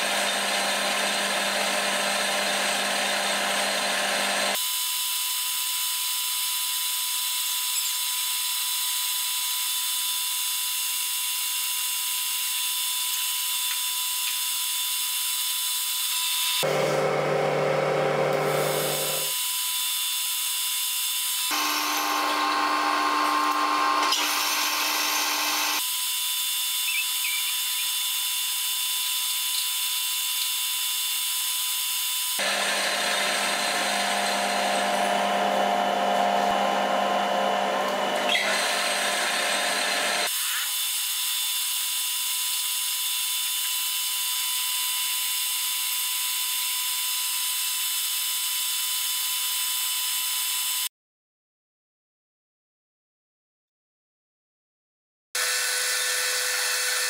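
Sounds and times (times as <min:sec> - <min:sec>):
metal lathe whine: 0:00.0 - 0:04.8, 0:16.0 - 0:20.0, 0:21.4 - 0:40.3, 0:55.4 - 0:57.0.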